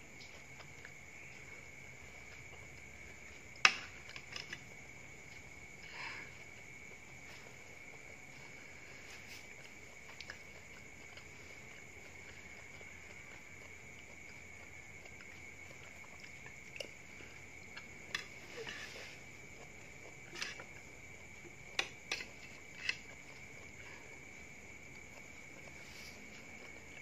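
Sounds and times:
crickets trilling: 0.0 - 27.0
soft chewing: 0.0 - 27.0
cutlery clicking on plastic plate: 21.8 - 23.0.

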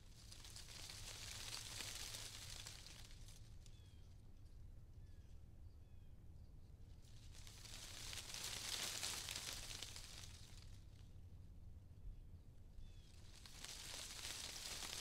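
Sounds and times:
rustling hiss: 0.0 - 3.6, 7.0 - 11.0, 13.0 - 15.0.

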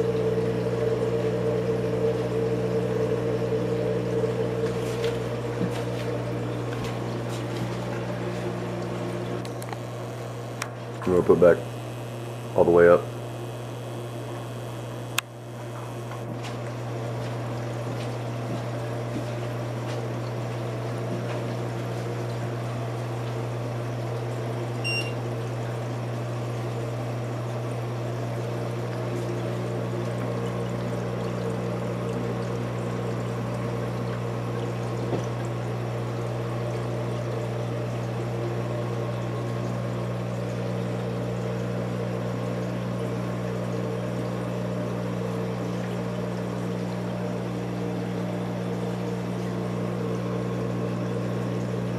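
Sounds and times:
aquarium pump humming: 0.0 - 51.9
click: 15.1 - 15.3
water pouring and trickling: 16.2 - 51.9.

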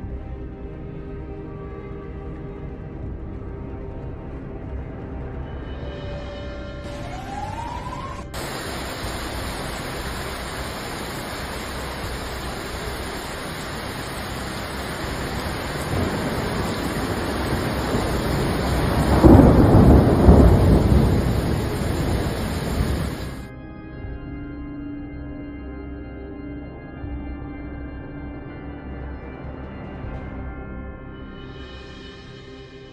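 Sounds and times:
thunder rumbling: 6.9 - 23.5
heavy rain hiss: 8.3 - 23.5.

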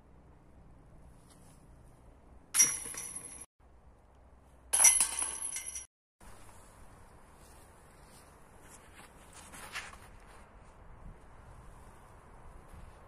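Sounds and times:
discs hitting metal basket chains: 2.6 - 3.4, 4.8 - 5.9.

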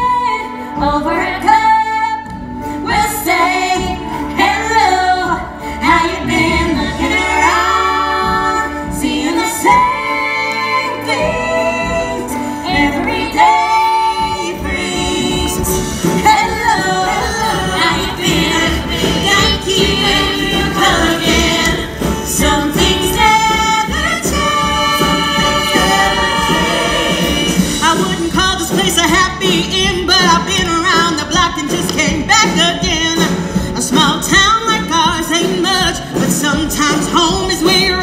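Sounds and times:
band playing with steady beat: 0.0 - 38.0
people singing: 2.9 - 38.0.

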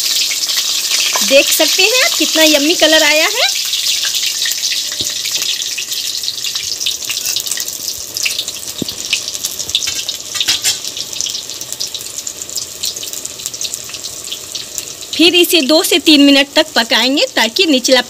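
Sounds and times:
vegetables sizzling in hot oil: 0.0 - 18.0.

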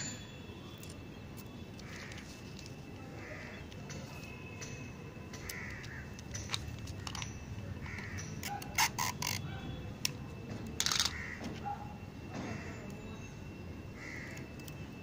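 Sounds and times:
crows cawing: 1.8 - 2.4, 3.0 - 3.8, 5.4 - 6.4, 7.1 - 8.4, 10.9 - 11.6, 12.4 - 12.9, 13.9 - 14.5.

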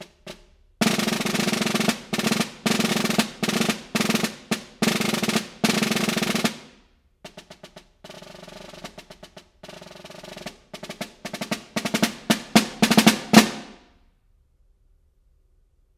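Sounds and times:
snare drum rolls and strokes: 0.0 - 13.9.

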